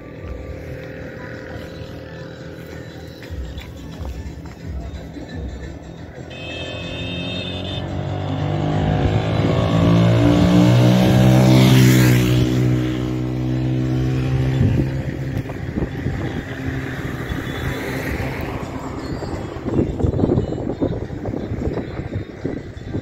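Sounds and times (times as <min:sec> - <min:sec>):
vehicle passing by: 0:06.8 - 0:20.2.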